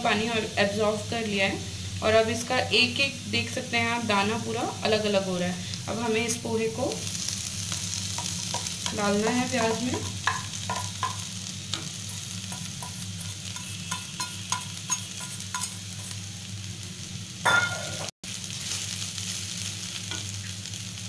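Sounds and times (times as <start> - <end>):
food sizzling in a wok: 0.0 - 21.0
spatula scraping pan: 10.0 - 16.2.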